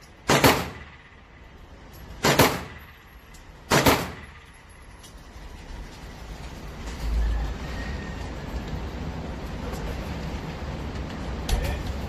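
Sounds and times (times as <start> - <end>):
pistol shots echoing: 0.2 - 1.2, 2.2 - 2.9, 3.7 - 4.4.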